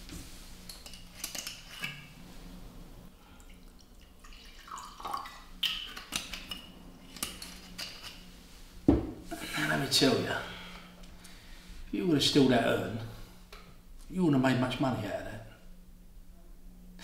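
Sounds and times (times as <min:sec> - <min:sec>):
liquid pouring into glass: 0:03.4 - 0:05.7.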